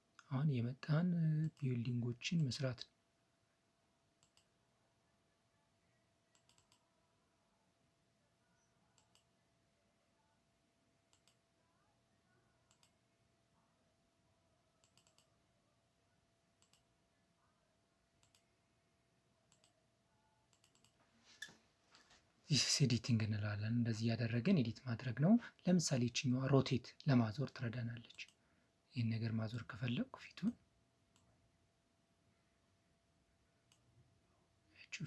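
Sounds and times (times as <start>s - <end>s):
faint steady hum: 0.0s - 35.0s
computer mouse clicks: 4.2s - 4.5s, 6.3s - 6.8s, 9.0s - 9.3s, 11.1s - 11.4s, 12.7s - 13.0s, 14.8s - 15.3s, 16.6s - 16.9s, 18.2s - 18.5s, 19.5s - 19.8s, 20.5s - 22.1s, 28.1s - 28.4s.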